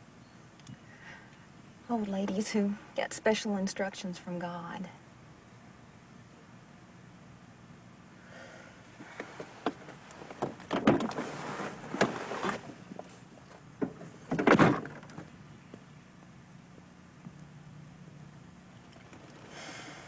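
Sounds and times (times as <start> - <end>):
car door opening: 9.0 - 12.7
car door slamming shut: 14.3 - 15.0.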